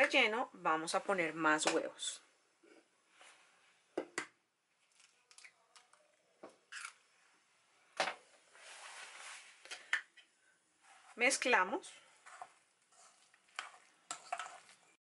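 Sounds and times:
soft rustle: 0:08.4 - 0:09.7, 0:10.8 - 0:11.3.

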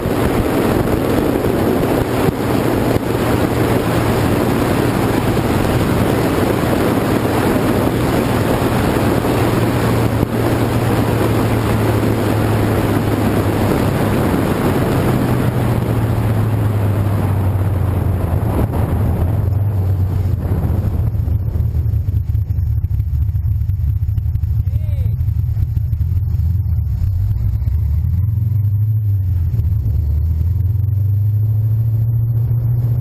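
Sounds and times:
car engine hum: 0:00.0 - 0:33.0
wind noise on microphone: 0:00.0 - 0:33.0.

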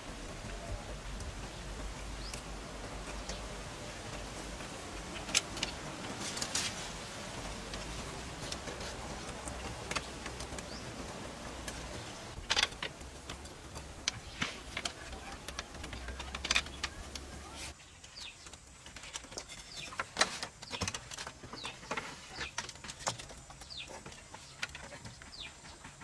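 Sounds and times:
background hiss: 0:00.0 - 0:26.0
bamboo slats clicking: 0:05.0 - 0:24.9.

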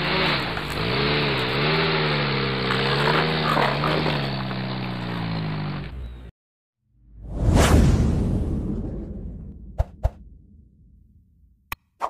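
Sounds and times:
truck engine running: 0:00.0 - 0:06.3.

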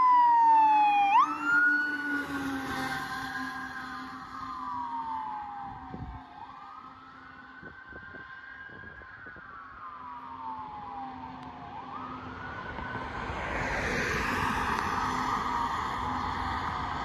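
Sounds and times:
distant fire engine siren wailing: 0:00.0 - 0:17.0
passing car tyre noise: 0:11.9 - 0:17.0.

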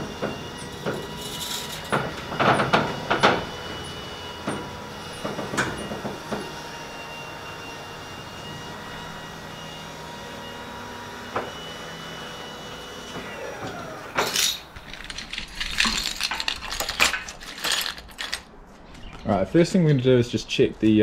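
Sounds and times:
loud scrape: 0:00.7 - 0:02.7
clinks and rattles of handling: 0:14.2 - 0:18.5.

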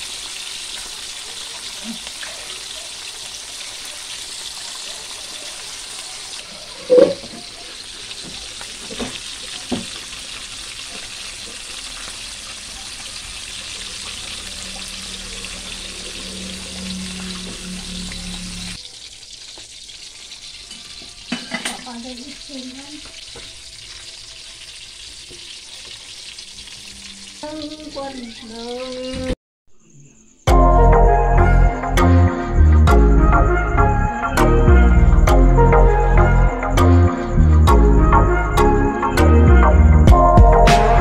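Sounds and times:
fish sizzling in hot oil: 0:00.0 - 0:29.4.

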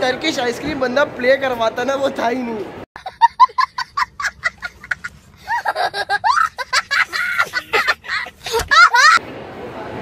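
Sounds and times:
young boy laughing: 0:03.0 - 0:09.2.

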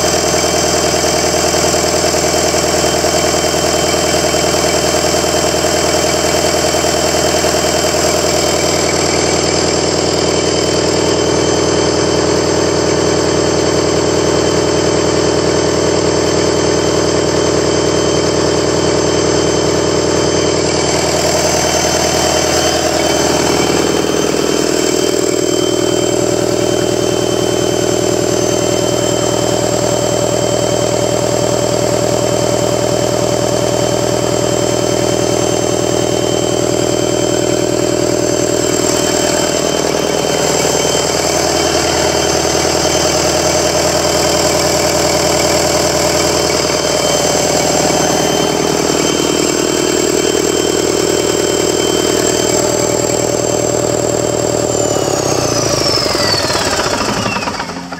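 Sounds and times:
diesel engine running: 0:00.0 - 0:57.9
high whine: 0:00.0 - 0:57.9.

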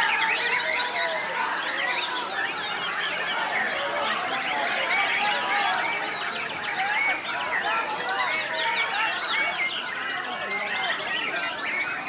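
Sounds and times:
many birds singing: 0:00.0 - 0:12.0.

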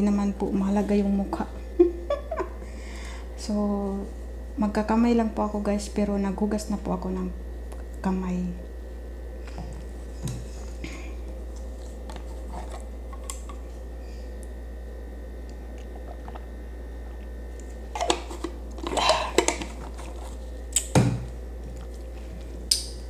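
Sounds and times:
low steady hum: 0:00.0 - 0:23.0
drinking and swallowing: 0:15.5 - 0:20.4.

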